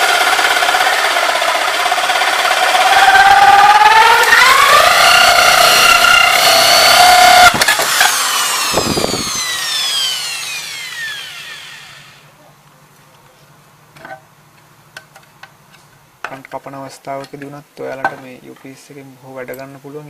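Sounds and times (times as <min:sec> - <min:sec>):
electric drill whining: 0:00.0 - 0:12.3.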